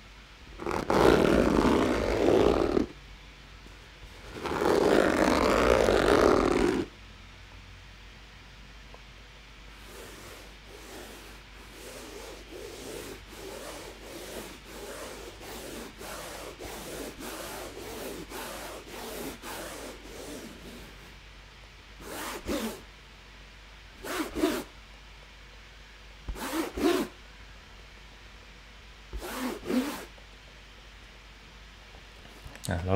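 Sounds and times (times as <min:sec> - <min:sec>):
fingers scratching fabric case: 0:00.6 - 0:02.9, 0:04.3 - 0:06.9, 0:10.0 - 0:21.0, 0:26.3 - 0:27.1, 0:29.2 - 0:30.1.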